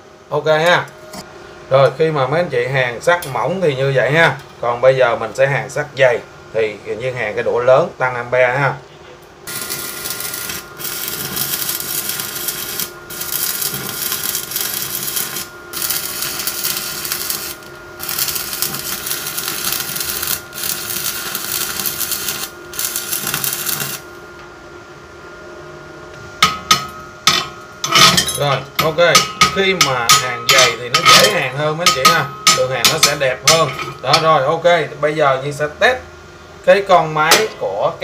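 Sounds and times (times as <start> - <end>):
welding arc crackling hiss: 9.5 - 24.2.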